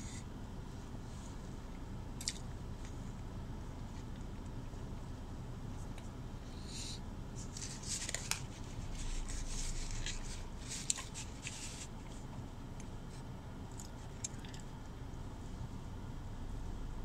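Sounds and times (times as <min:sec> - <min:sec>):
steady low hum: 0:00.0 - 0:17.0
wet crackly chewing: 0:13.6 - 0:14.8.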